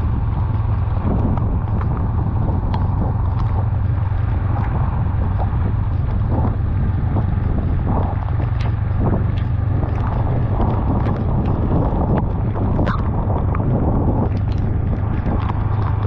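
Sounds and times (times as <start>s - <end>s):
motorcycle engine running: 0.0s - 16.0s
wind noise on microphone: 0.0s - 16.0s
sharp ticks: 0.1s - 16.0s
rain and wet tyres hissing: 14.2s - 16.0s.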